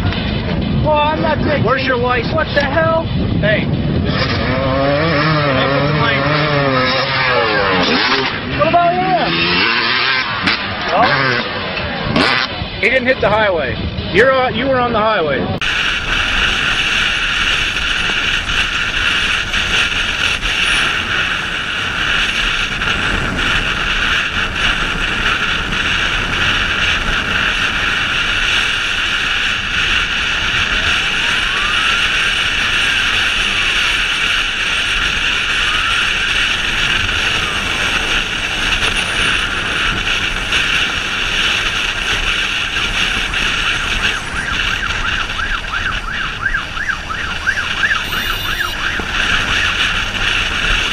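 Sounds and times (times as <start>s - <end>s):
motorcycle engine and road noise: 0.0s - 50.9s
faint siren wailing: 29.0s - 40.9s, 42.6s - 50.9s.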